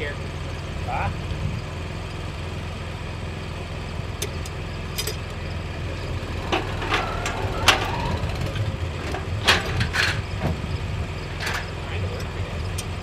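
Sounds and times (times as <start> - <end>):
engine running: 3.3 - 13.0
metallic clanks of ladder: 6.2 - 10.5.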